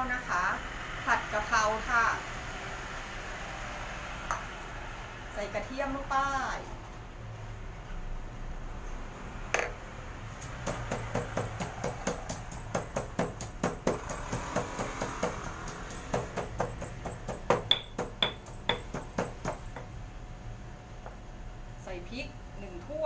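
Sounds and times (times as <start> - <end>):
stone pestle pounding in mortar: 10.4 - 19.9.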